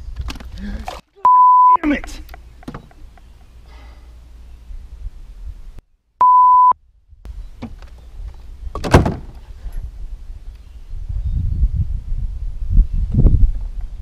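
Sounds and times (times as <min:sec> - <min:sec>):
censor bleep: 0:01.2 - 0:01.8, 0:06.2 - 0:06.8.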